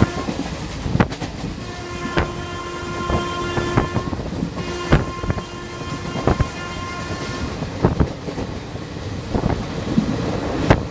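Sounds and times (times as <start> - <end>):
locomotive horn honking: 0.0 - 0.5, 1.6 - 7.6
train wheels rumbling: 0.0 - 10.9
wheels clacking over rail joints: 0.0 - 10.9.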